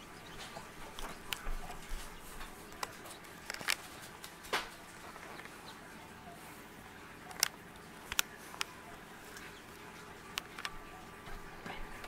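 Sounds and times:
chicks peeping: 0.0 - 12.0
light ticks and clicks: 0.2 - 5.6.

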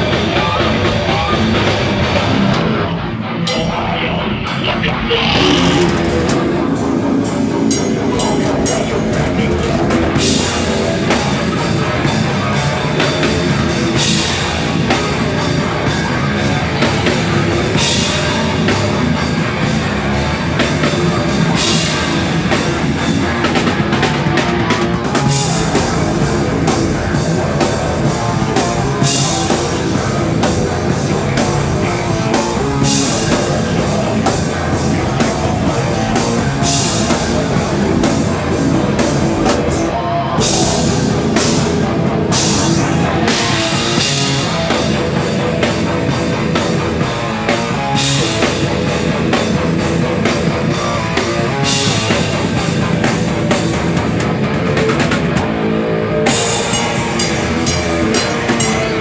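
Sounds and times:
live rock band playing: 0.0 - 59.0
cymbal crashes: 56.3 - 59.0.

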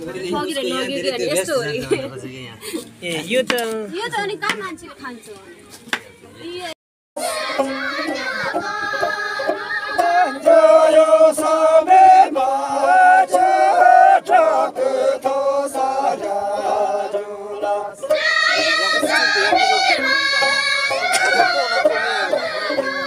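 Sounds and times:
women singing in unison: 7.2 - 23.0.

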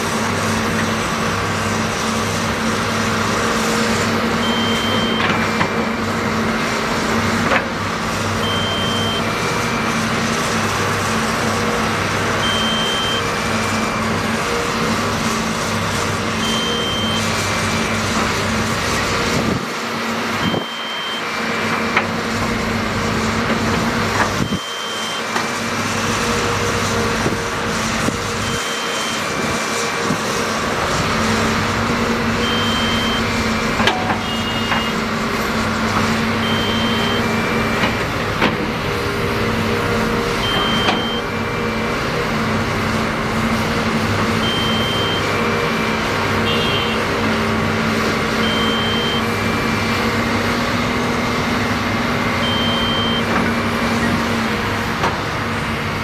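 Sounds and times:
excavator diesel engines: 0.0 - 56.0
two-note electronic warning alarm: 4.4 - 5.4, 8.4 - 9.4, 12.4 - 13.4, 16.4 - 17.3, 20.4 - 21.3, 24.4 - 25.3, 28.4 - 29.3, 32.4 - 35.0, 36.4 - 37.7, 40.4 - 41.3, 44.4 - 45.4, 46.4 - 47.1, 48.4 - 49.4, 52.4 - 53.3.

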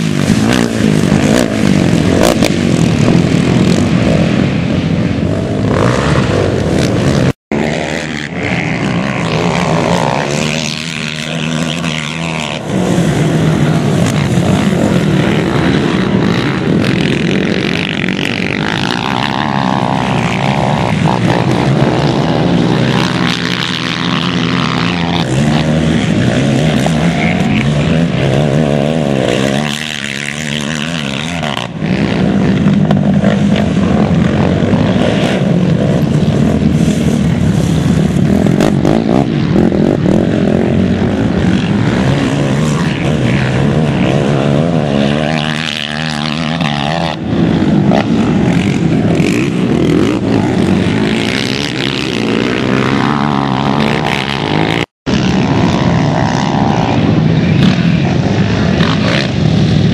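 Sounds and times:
quad engines revving: 0.0 - 59.9.

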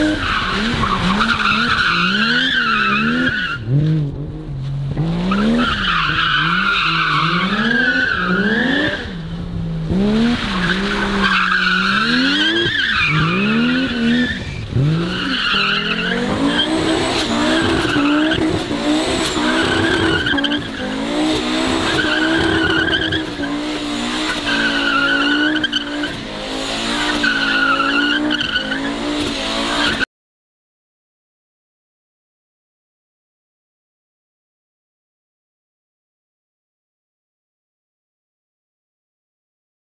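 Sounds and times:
car engine revving: 0.0 - 30.0.

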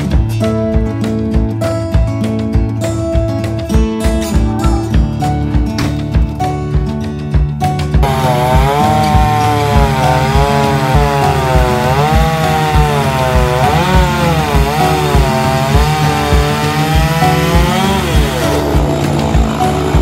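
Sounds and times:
music with low beat: 0.0 - 20.0
chainsaw cutting wood: 8.0 - 20.0.

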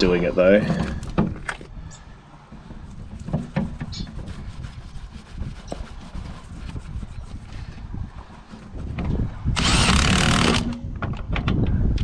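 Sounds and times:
gloved hands rubbing metal pipe: 2.3 - 9.4.

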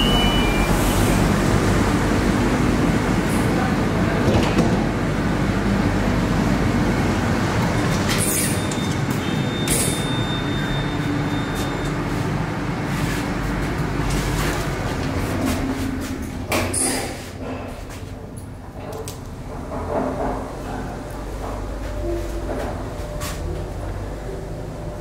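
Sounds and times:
electric train rumble and hum: 0.0 - 25.0
lift doors sliding: 7.3 - 24.8.

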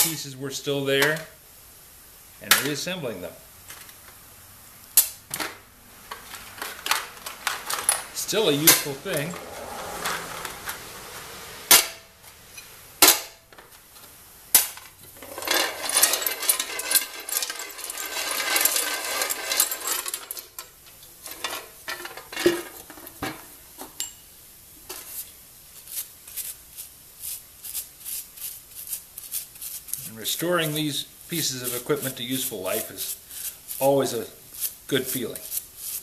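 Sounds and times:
metal parts knocking in a pot: 15.1 - 20.6
brush scrubbing metal part: 25.0 - 36.0.

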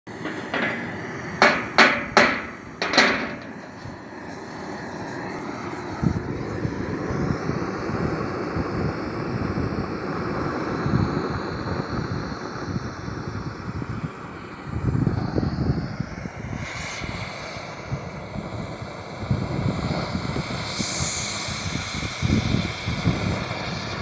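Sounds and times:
sharp metal knocks: 0.1 - 3.9
cutting torch flame hissing: 0.1 - 24.0.

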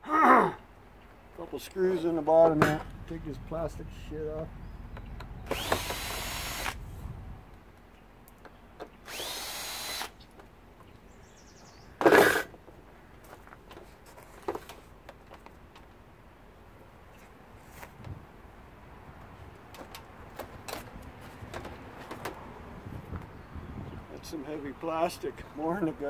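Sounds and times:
power drill whining: 5.4 - 6.8, 9.0 - 10.2.

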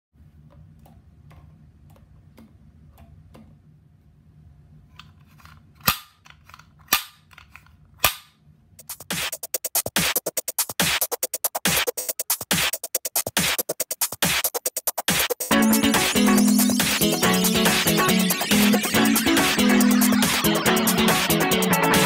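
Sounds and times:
faint low hum: 0.2 - 8.8
electronic music fast beat: 8.8 - 22.0.

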